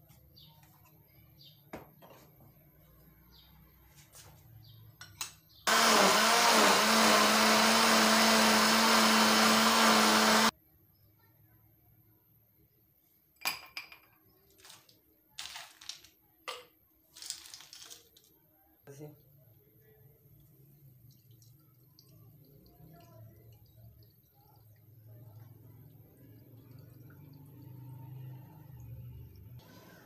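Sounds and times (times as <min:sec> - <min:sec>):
blender motor running: 0:05.7 - 0:10.5.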